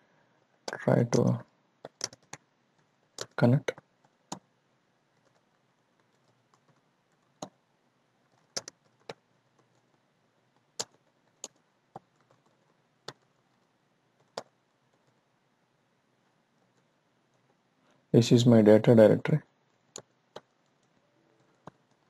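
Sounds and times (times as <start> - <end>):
keyboard keystrokes: 0.7 - 4.5, 8.3 - 9.9, 20.0 - 22.0.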